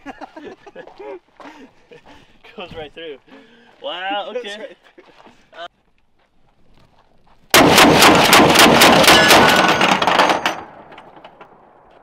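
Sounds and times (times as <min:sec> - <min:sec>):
rifle firing blast: 0:07.5 - 0:11.9
rapid repeated cracks and rumble: 0:07.5 - 0:12.0.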